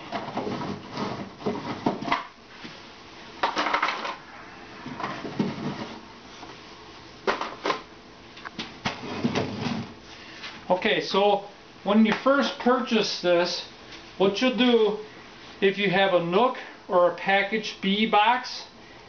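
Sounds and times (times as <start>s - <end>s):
wooden frames scraping: 0.0s - 2.3s, 4.8s - 6.1s, 8.8s - 10.0s.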